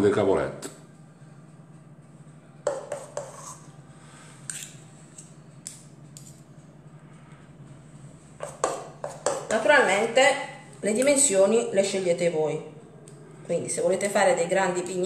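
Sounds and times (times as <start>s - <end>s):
low hum: 3.6s - 8.4s, 9.8s - 15.0s.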